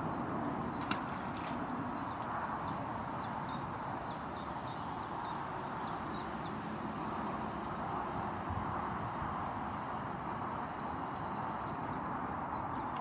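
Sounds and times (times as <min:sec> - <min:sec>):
steady outdoor hiss: 0:00.0 - 0:13.0
small bird singing: 0:01.5 - 0:07.6, 0:11.6 - 0:13.0.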